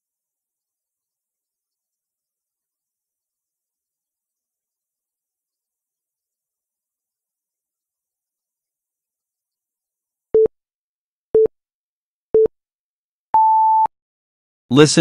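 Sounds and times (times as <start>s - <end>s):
long high electronic beep: 13.4s - 13.9s
short low electronic beeps: 13.4s - 13.9s.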